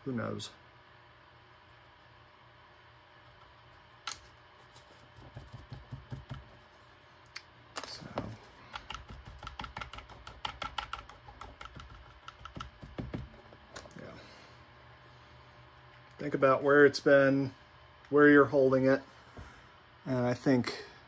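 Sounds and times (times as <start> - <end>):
sharp click: 4.0 - 4.3
brush tapping and scuffing plastic: 4.6 - 6.6.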